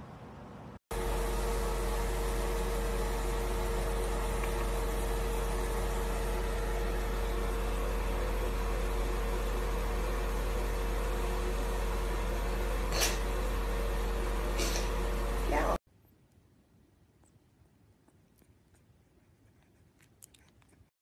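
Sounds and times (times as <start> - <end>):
small motor humming: 0.9 - 15.8.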